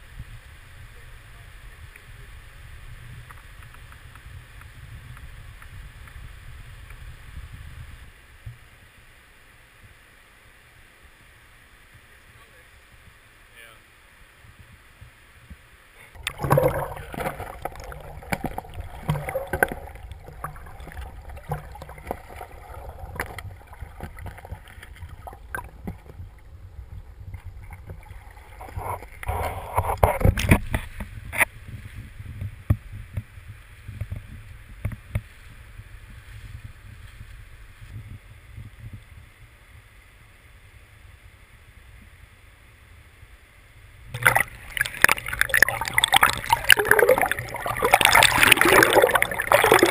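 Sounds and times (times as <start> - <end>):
river water rumbling: 16.0 - 31.6, 44.1 - 49.9
water splashing: 16.1 - 31.0, 44.2 - 49.9.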